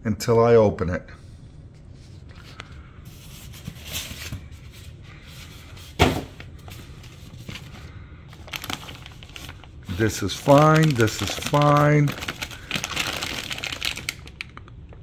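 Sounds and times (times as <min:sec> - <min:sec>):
plastic bags rustling: 0:03.1 - 0:14.7.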